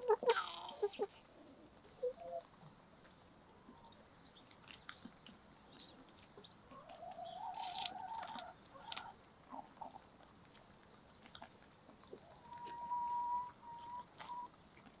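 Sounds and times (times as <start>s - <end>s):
hens pecking clicks: 4.4s - 12.8s
hen calling: 12.2s - 14.5s.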